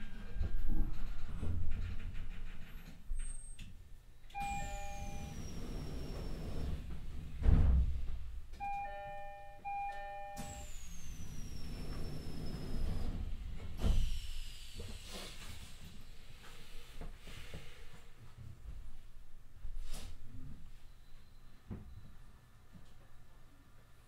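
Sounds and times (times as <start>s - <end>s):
train door chime: 4.4s - 5.6s, 8.6s - 10.9s.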